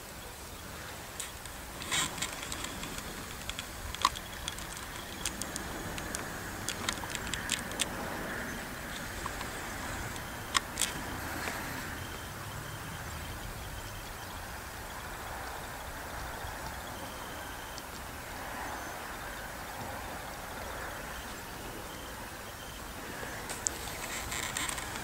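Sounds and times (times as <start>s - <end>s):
steady background hiss: 0.0s - 25.0s
sharp clicks and ticks: 1.2s - 12.8s, 23.5s - 25.0s.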